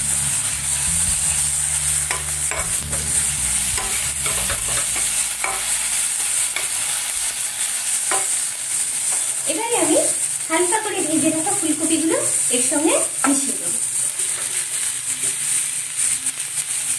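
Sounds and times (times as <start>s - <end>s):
paste sizzling in oil: 0.0s - 16.9s
metal spatula scraping pan: 1.4s - 9.3s.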